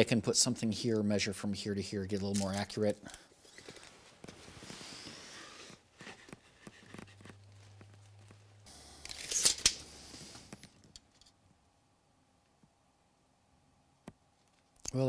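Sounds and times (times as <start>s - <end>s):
tape measure blade rattling: 9.1s - 9.9s.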